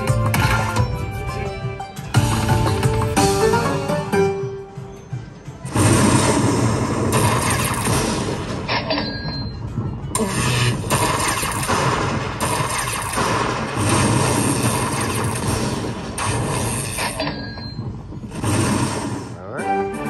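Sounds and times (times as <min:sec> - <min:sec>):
electric lightning zaps: 0:05.7 - 0:08.9, 0:10.1 - 0:17.4, 0:18.3 - 0:19.4.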